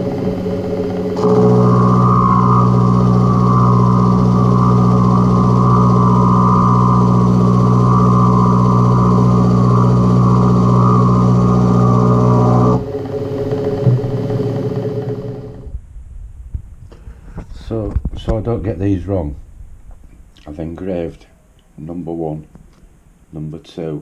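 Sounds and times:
milling machine cutting metal: 0.0s - 15.1s.

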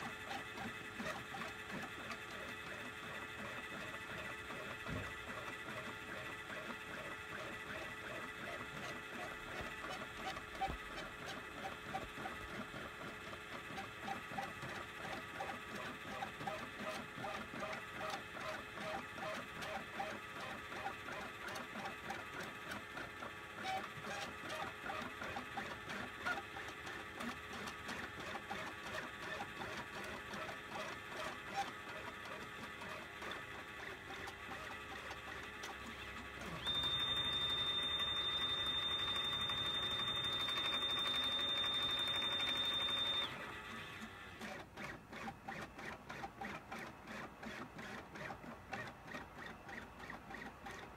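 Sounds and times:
stepper motors whining and pulsing: 36.4s - 44.0s.

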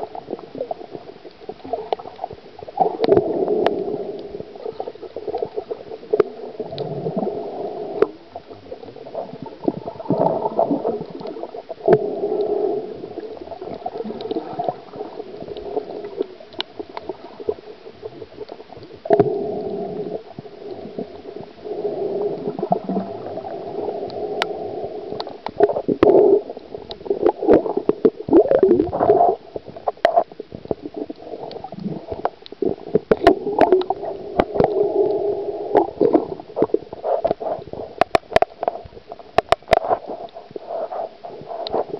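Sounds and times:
water gurgling underwater: 0.0s - 41.9s
sharp clicks and knocks: 38.0s - 40.0s.

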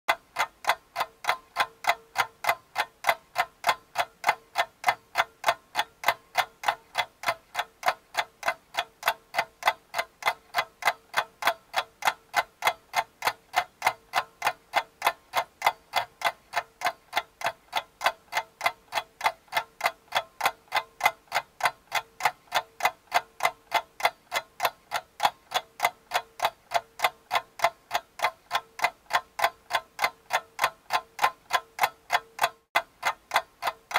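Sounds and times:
mechanical ticking: 0.1s - 33.9s.

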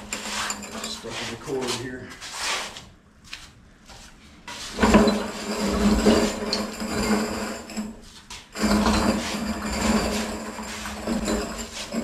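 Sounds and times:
casters rumbling on concrete: 4.7s - 12.0s.

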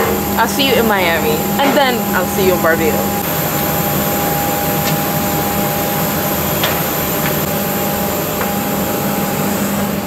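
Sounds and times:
airliner systems whirring hum: 0.0s - 10.0s.

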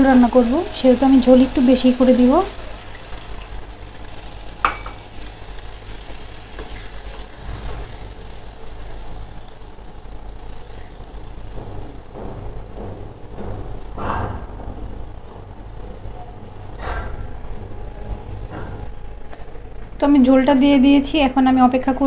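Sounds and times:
water poured into a wok: 0.0s - 8.2s
steady low hum: 0.0s - 22.0s.

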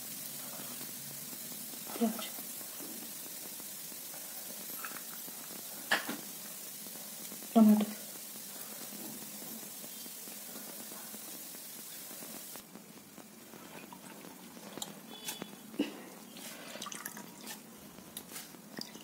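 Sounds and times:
steady hiss: 0.0s - 19.0s
water dripping and splashing: 0.0s - 19.0s.

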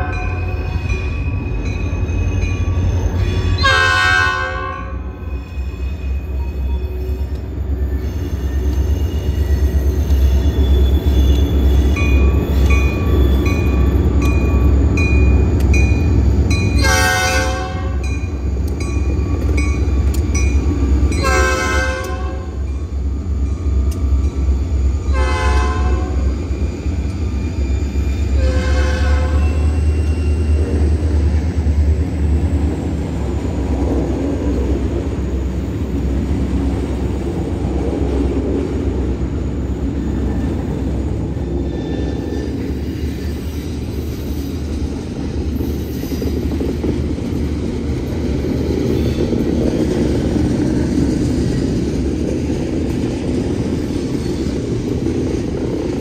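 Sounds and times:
crossing bell ringing: 0.0s - 4.0s, 4.6s - 25.3s
diesel locomotives rumbling past: 0.0s - 56.0s
locomotive air horn blasts: 3.6s - 5.2s, 16.8s - 18.1s, 21.2s - 22.6s, 25.1s - 26.2s, 28.4s - 29.7s.

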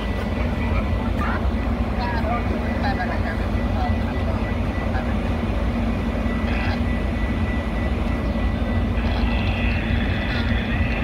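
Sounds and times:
constant hum: 0.0s - 11.0s
diesel train idling: 0.0s - 11.0s.

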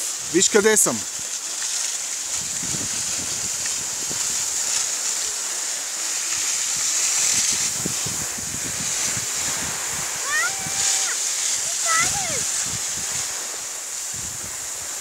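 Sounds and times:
skis sliding over snow: 0.0s - 15.0s
wind buffeting microphone: 2.2s - 4.9s, 6.3s - 15.0s.

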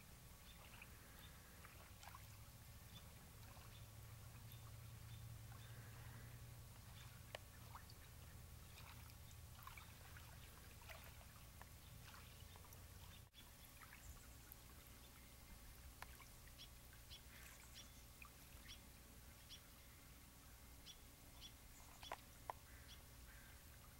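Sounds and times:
water trickling: 0.0s - 23.9s
soft ticks: 7.0s - 7.5s, 16.0s - 16.2s, 21.9s - 22.6s.

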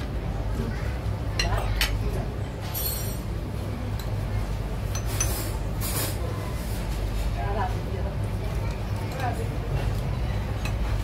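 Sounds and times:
low background hum: 0.0s - 11.0s
cutlery and dishes clinking: 2.6s - 3.3s.

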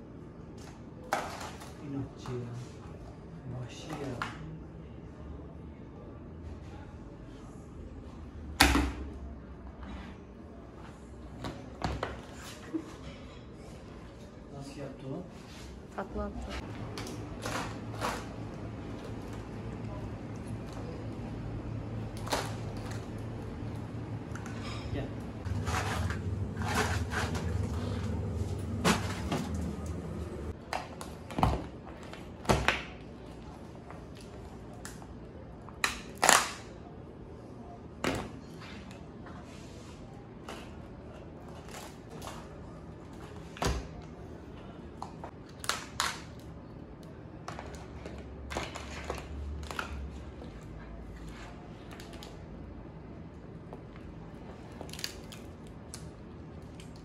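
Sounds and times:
steady low hum: 4.5s - 35.8s.

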